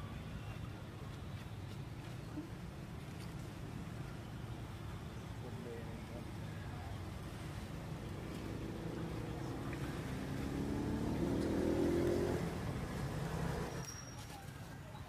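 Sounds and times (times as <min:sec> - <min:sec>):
vehicle engine passing by: 0:07.6 - 0:13.8.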